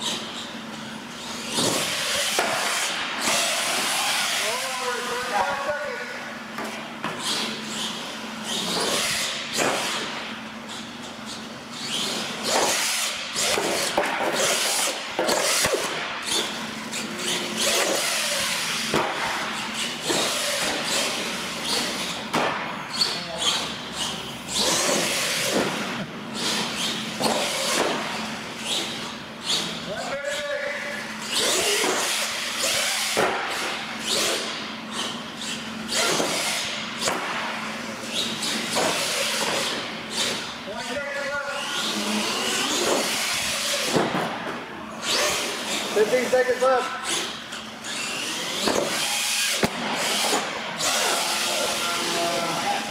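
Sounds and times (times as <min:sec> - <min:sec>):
toy truck motor whining: 0:00.0 - 0:05.7, 0:07.2 - 0:22.2, 0:22.9 - 0:37.1, 0:37.8 - 0:40.6, 0:41.5 - 0:44.0, 0:45.0 - 0:52.9.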